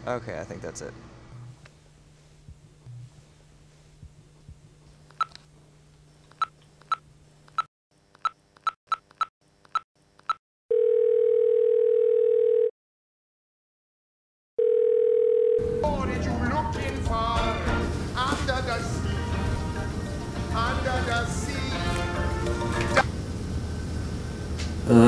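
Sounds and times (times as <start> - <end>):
phone ringing tone: 10.7 - 12.7, 14.6 - 15.8.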